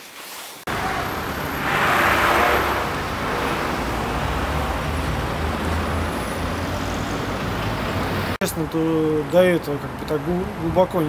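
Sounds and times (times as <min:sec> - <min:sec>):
passing car hiss: 0:00.7 - 0:08.3
traffic rumble: 0:00.7 - 0:11.0.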